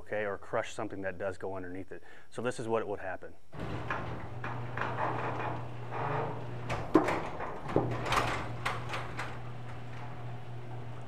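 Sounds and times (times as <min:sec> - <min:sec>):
sharp knocks: 0:03.6 - 0:08.2
door rattling along tracks: 0:03.6 - 0:11.0
garage door motor humming: 0:03.6 - 0:11.0.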